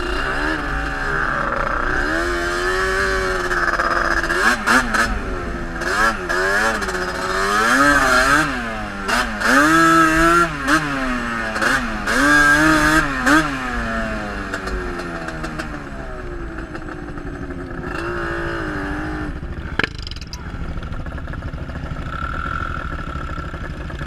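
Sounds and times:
quad engine revving: 0.0s - 24.0s.

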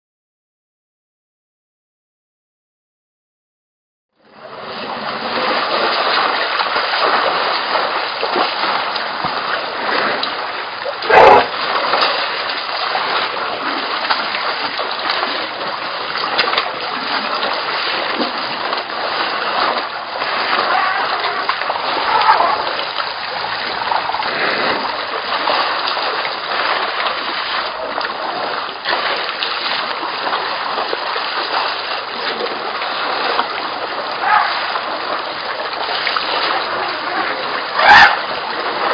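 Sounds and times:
elephants splashing in water: 4.4s - 38.9s.

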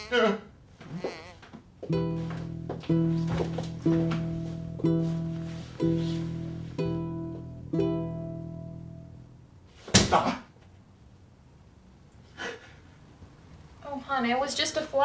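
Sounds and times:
plucked guitar notes: 1.9s - 9.4s.

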